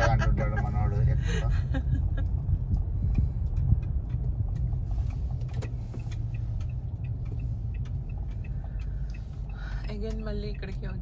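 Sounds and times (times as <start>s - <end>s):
car cabin rumble: 0.0s - 11.0s.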